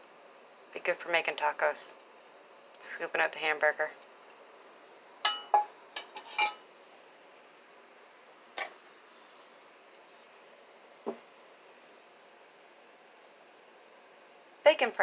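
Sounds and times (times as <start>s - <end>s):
metal utensils clinking: 5.3s - 6.6s.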